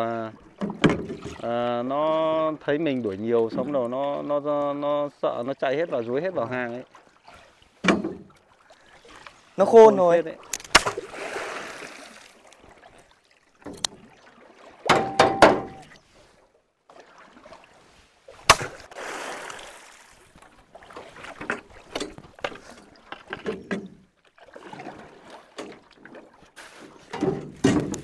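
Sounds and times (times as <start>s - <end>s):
water splashing: 5.6s - 28.0s.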